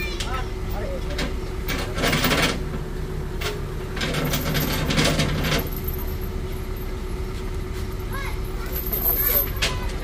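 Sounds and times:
low engine rumble: 0.0 - 10.0
rattling and clinking: 4.0 - 6.9, 8.6 - 9.9.

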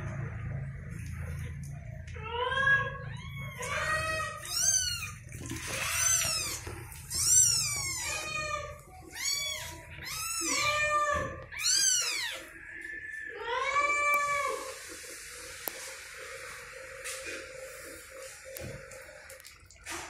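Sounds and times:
kittens mewing: 2.2 - 12.5.

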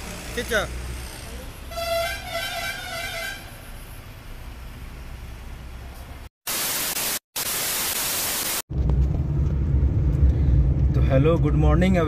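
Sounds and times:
static hiss burst: 6.5 - 8.7.

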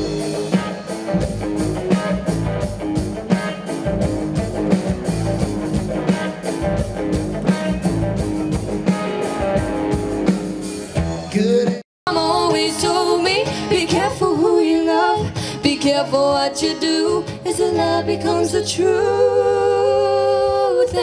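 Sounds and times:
live band with guitars and singing: 0.0 - 21.0
woman singing over acoustic guitar: 12.1 - 21.0.

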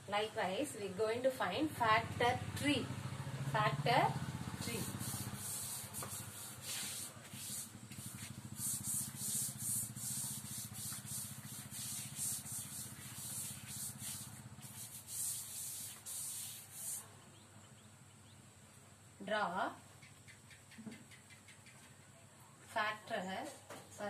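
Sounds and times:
duster rubbing on blackboard: 4.6 - 17.1.

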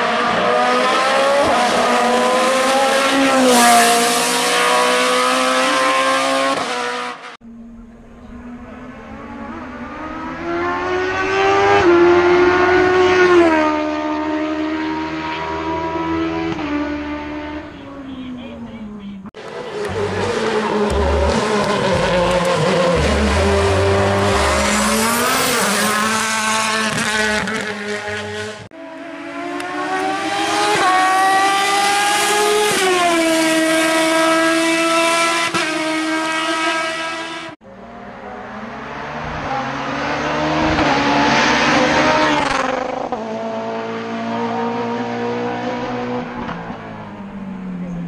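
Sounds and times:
racing car engines accelerating: 0.0 - 48.0.

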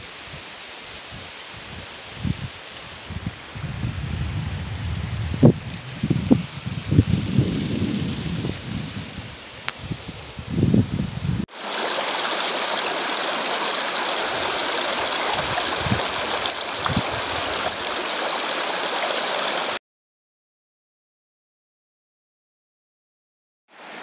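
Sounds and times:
river rushing over rocks: 11.5 - 19.8.

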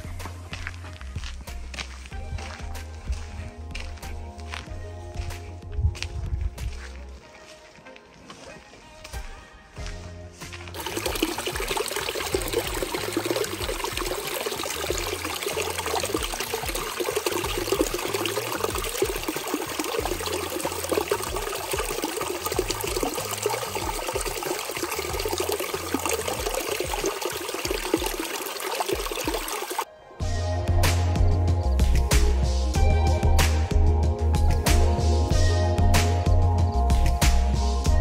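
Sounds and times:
stream trickling and splashing: 10.6 - 29.9.

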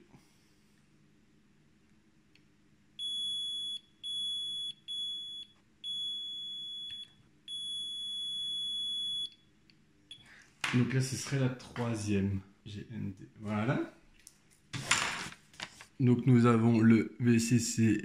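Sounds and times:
multimeter continuity beeps: 3.0 - 9.5.

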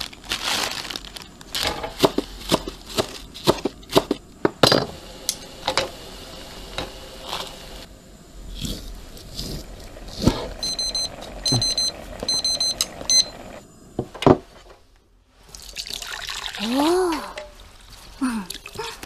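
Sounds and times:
hot water pouring into bowl: 4.9 - 13.6, 15.5 - 16.7
kitchen timer beeping: 10.6 - 13.6.

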